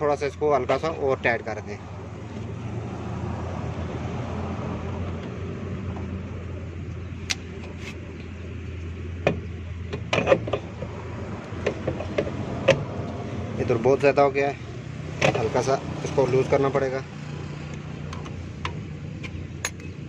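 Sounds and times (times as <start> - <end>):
metallic clicks and knocks: 9.2 - 10.9.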